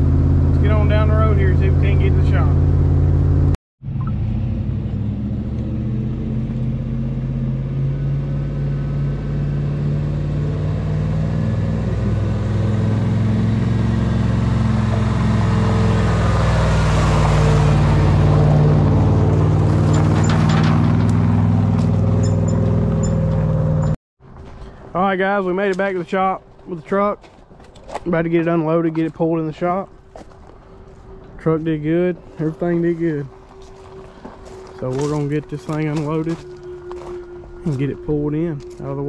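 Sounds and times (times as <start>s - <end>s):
truck engine running: 0.0s - 24.0s, 29.0s - 39.0s
tyres crunching on gravel: 16.6s - 39.0s.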